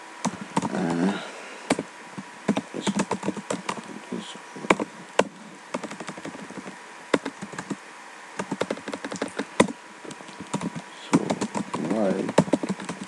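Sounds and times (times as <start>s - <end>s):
keyboard keystrokes: 2.5s - 3.9s, 4.7s - 7.8s, 8.4s - 13.0s.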